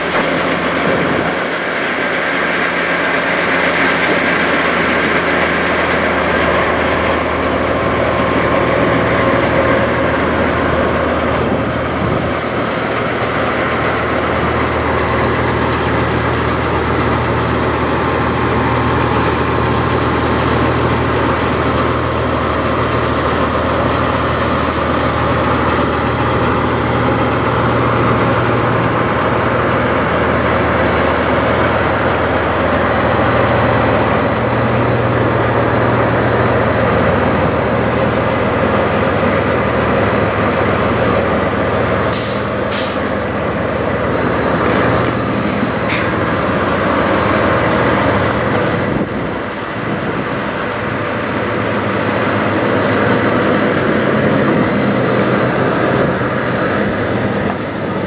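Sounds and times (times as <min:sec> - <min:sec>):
diesel engine idling: 0:00.0 - 0:58.0.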